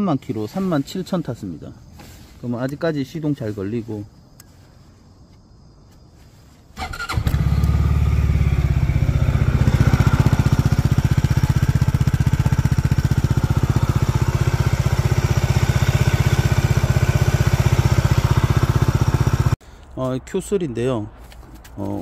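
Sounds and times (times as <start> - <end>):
electric starter cranking: 6.8 - 7.9
scooter engine idling: 6.8 - 19.6.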